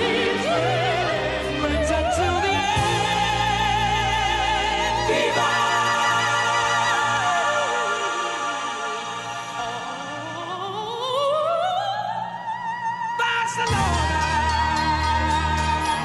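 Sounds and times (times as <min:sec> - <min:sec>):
orchestral backing: 0:00.0 - 0:10.9
operatic singing: 0:00.0 - 0:16.0.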